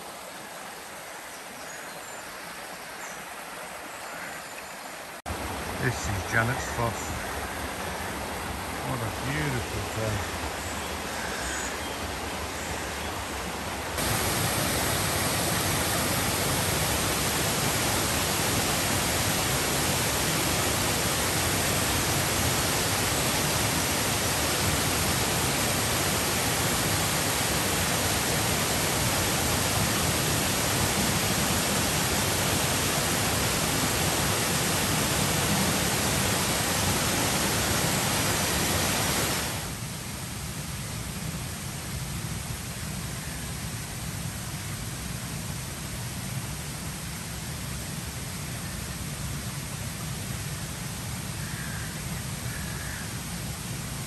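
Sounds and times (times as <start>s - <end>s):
waterfall rushing: 5.0s - 40.0s.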